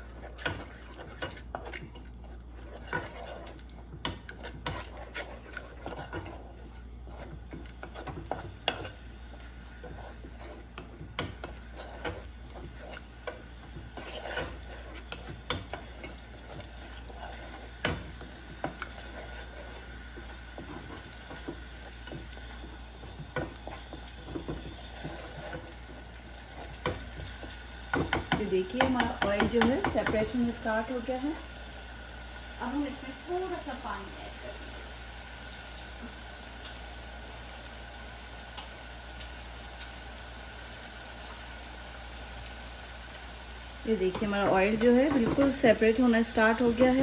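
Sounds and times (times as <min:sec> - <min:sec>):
wooden spatula scraping saucepan: 0:00.0 - 0:31.2, 0:43.9 - 0:47.0.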